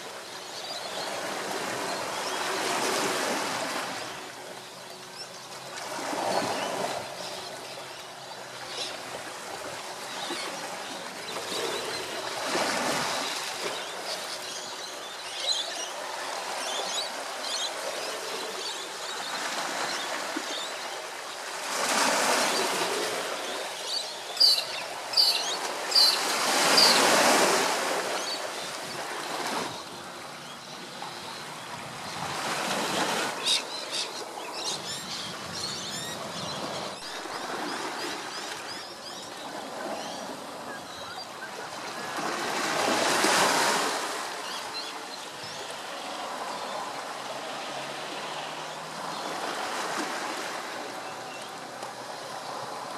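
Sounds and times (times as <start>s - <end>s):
small waves washing onto shore: 0.0s - 52.9s
bird chirping: 23.9s - 26.2s.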